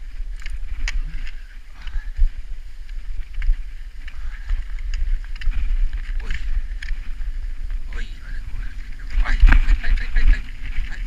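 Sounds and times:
skis sliding over snow: 0.0s - 11.0s
wind rumble on microphone: 0.0s - 11.0s
ski poles clicking: 0.2s - 1.5s, 2.7s - 7.4s.

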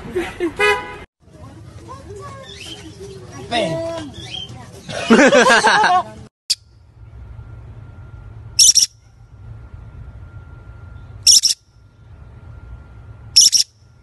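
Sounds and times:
parrot screeching: 8.6s - 8.9s, 11.3s - 11.6s, 13.4s - 13.7s.

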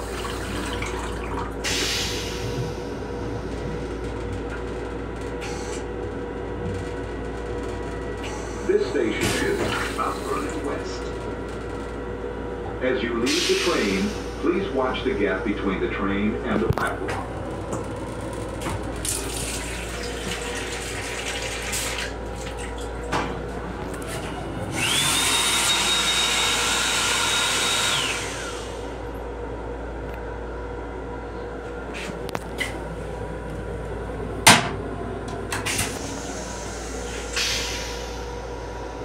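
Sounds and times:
hand dryer whining: 24.6s - 28.9s.

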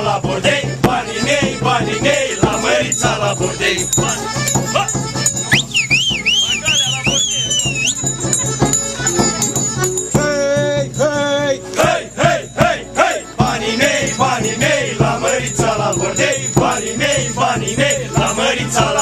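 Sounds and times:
folk dance tune: 0.0s - 19.0s
hand bell shaken rhythmically: 0.0s - 19.0s
voices singing: 0.0s - 19.0s
high wavering whistled melody: 4.8s - 10.1s.

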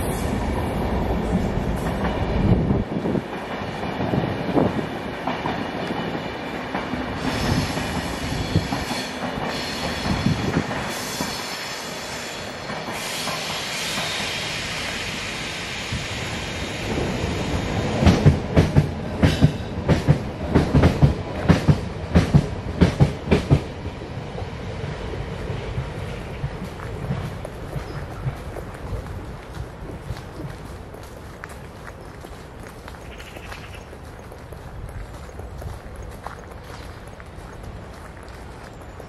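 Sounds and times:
train rumbling past: 0.0s - 39.0s
footsteps on fallen leaves: 25.9s - 39.0s.

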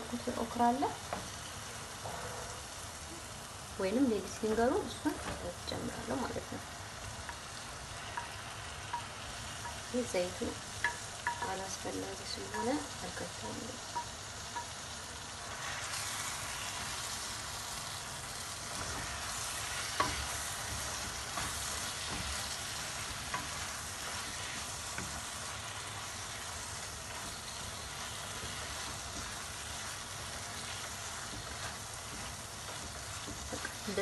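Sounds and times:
sauce sizzling in a frying pan: 0.0s - 34.0s
wooden spatula scraping: 18.4s - 34.0s
spatula knocking on pan: 18.7s - 25.4s, 27.1s - 34.0s.

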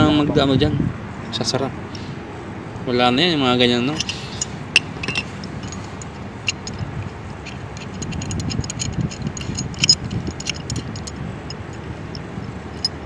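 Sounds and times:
low steady rumble: 0.0s - 13.0s
metal wrench clicking on pipe: 3.9s - 13.0s.

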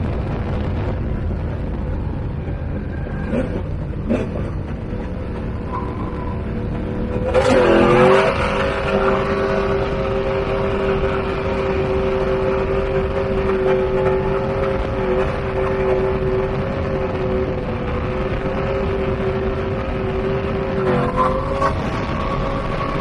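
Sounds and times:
engine running at high revs: 0.0s - 23.0s
wind noise rushing: 0.0s - 23.0s.

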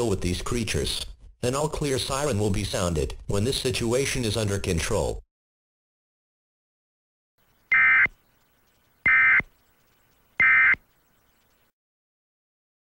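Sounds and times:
digital data tone bursts: 7.7s - 8.2s, 9.0s - 9.5s, 10.4s - 10.8s.

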